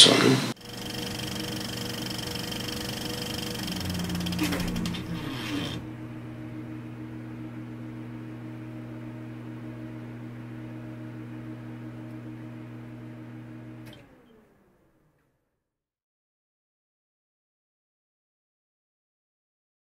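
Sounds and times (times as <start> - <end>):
motor humming and winding down: 0.0 - 15.3.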